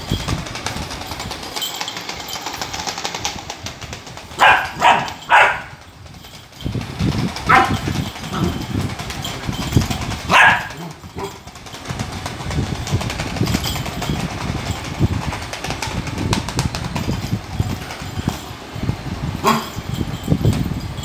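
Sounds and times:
toy ball rolling on hard floor: 0:00.0 - 0:21.0
puppy barking: 0:04.4 - 0:05.7, 0:07.5 - 0:07.8, 0:10.3 - 0:11.4
puppy yipping: 0:04.4 - 0:05.7, 0:10.3 - 0:11.3.

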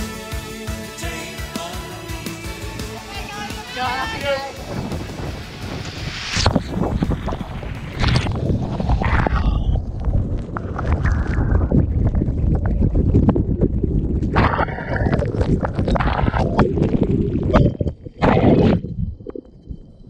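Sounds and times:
water rushing and splashing: 0:02.3 - 0:13.4
wind buffeting microphone: 0:03.9 - 0:20.0.

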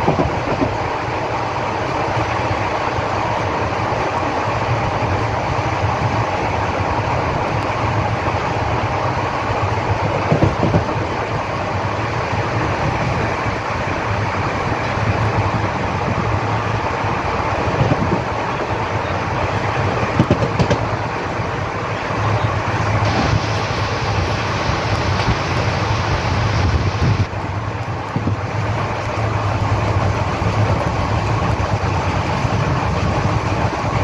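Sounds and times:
train knocks: 0:00.0 - 0:01.2, 0:07.4 - 0:11.8, 0:12.6 - 0:27.3, 0:28.0 - 0:28.8
train wheels rumbling on rails: 0:00.0 - 0:34.0.

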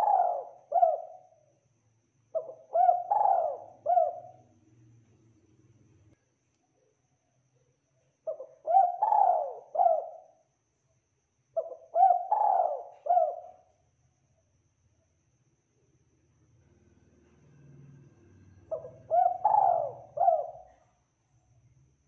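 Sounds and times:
dove cooing: 0:00.0 - 0:01.4, 0:02.4 - 0:04.5, 0:08.3 - 0:10.4, 0:11.6 - 0:13.7, 0:18.7 - 0:20.9.

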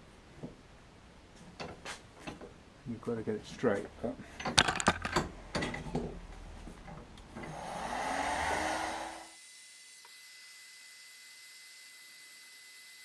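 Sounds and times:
heat gun blower whining: 0:07.4 - 0:09.4.

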